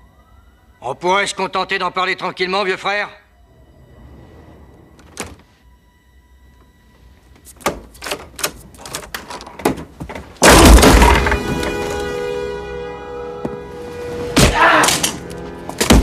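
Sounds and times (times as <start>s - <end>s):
tense music tones: 1.5s - 7.4s, 10.5s - 16.0s
loud crash: 10.4s - 12.5s.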